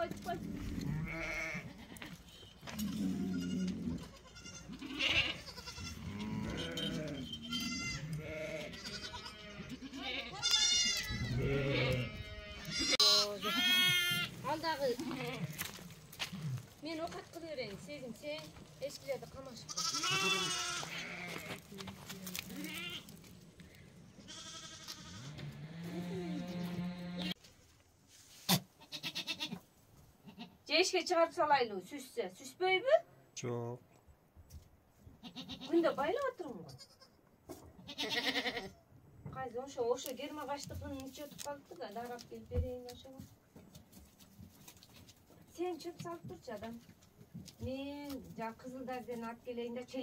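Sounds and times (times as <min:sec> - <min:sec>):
goats bleating: 0:00.2 - 0:16.5, 0:19.5 - 0:23.2, 0:24.2 - 0:27.4, 0:28.8 - 0:29.6, 0:35.2 - 0:35.8, 0:37.8 - 0:38.8.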